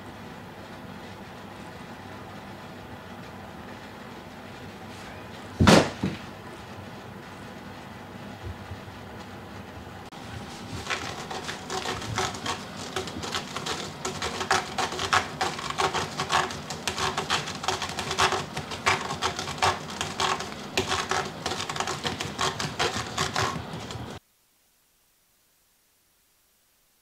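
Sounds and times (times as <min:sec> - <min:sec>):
cat scratching a rope post: 0:10.1 - 0:24.2.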